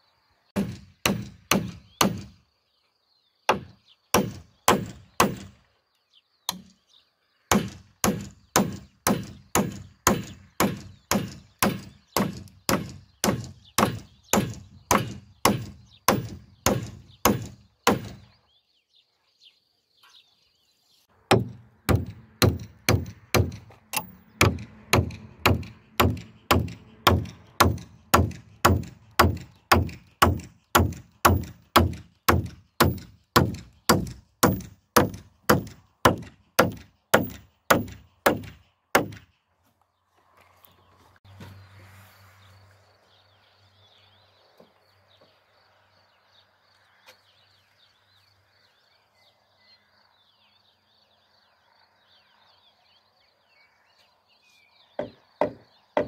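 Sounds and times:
hammer driving nails into timber: 0.6 - 2.4, 3.5 - 5.6, 7.5 - 18.3, 21.3 - 39.3, 55.0 - 56.0.

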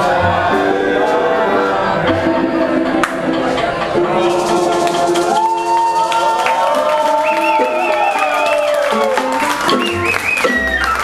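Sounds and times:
people clapping along: 3.0 - 3.5, 4.1 - 11.0.

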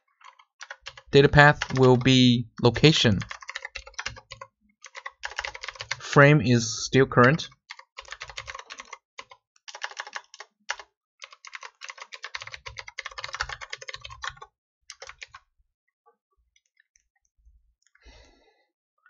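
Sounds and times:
typing on computer keyboard: 0.1 - 2.1, 3.2 - 6.0, 7.2 - 15.4.

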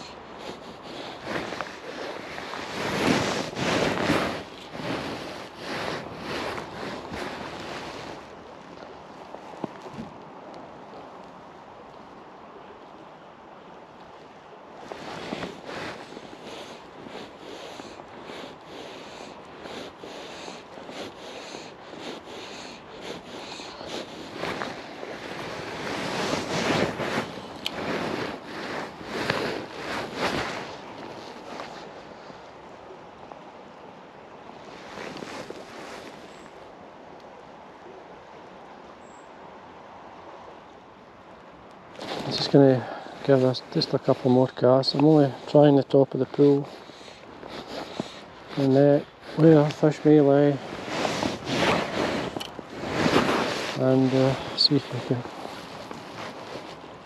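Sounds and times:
rushing and rubbing on microphone: 0.0 - 8.4, 14.8 - 32.0, 34.7 - 36.2, 42.0 - 57.0.

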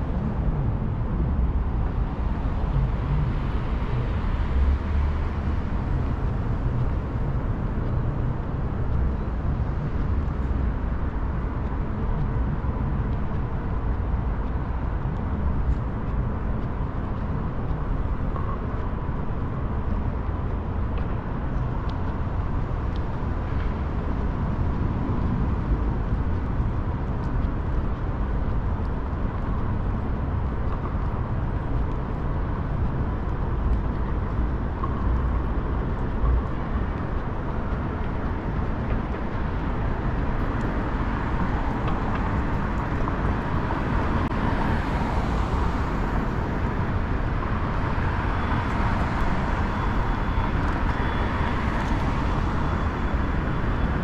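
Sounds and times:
rumble of passing cars: 0.0 - 54.0.

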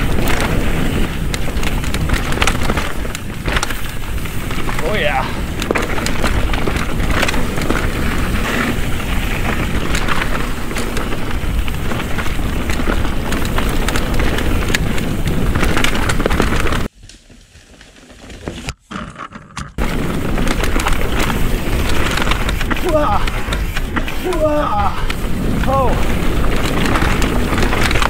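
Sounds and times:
wind rushing over microphone: 0.0 - 16.9, 19.8 - 28.0
bike tyres rolling on dirt: 0.0 - 19.2, 19.8 - 28.0
bike clicks and rattles: 0.0 - 28.0.

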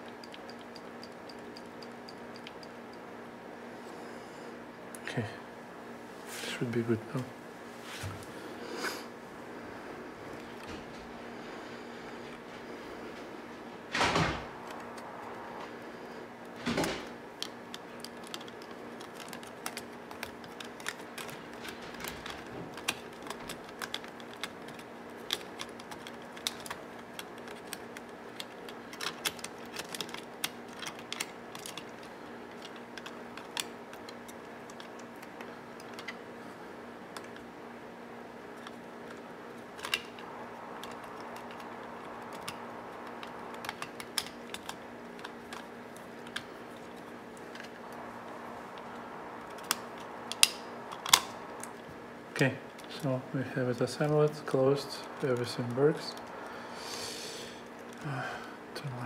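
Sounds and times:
light clicks of small parts: 0.0 - 3.0, 17.4 - 36.2, 38.5 - 51.8.

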